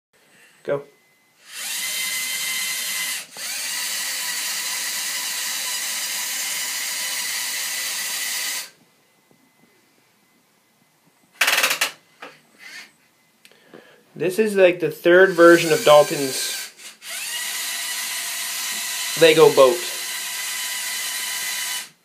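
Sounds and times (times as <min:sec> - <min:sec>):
toy motors whirring: 0:01.4 - 0:08.8, 0:15.3 - 0:22.0.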